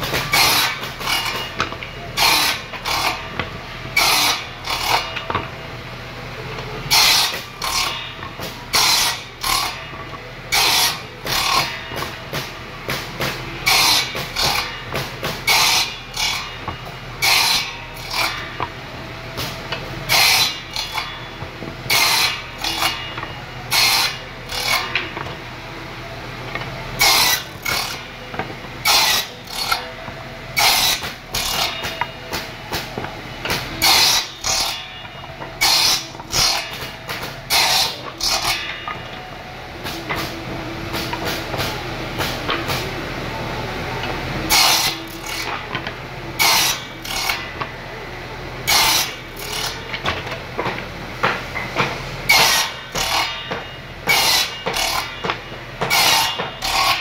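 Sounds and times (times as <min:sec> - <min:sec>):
table saw cutting wood: 0:00.0 - 0:05.4, 0:06.9 - 0:09.9, 0:10.5 - 0:12.5, 0:13.5 - 0:18.7, 0:20.1 - 0:25.3, 0:27.0 - 0:28.1, 0:28.8 - 0:32.1, 0:33.5 - 0:39.2, 0:44.5 - 0:45.7, 0:46.4 - 0:47.6, 0:48.6 - 0:50.2, 0:52.2 - 0:57.0
table saw running: 0:00.0 - 0:05.7, 0:06.8 - 0:19.0, 0:19.7 - 0:25.7, 0:26.5 - 0:43.4, 0:44.0 - 0:48.0, 0:48.6 - 0:57.0.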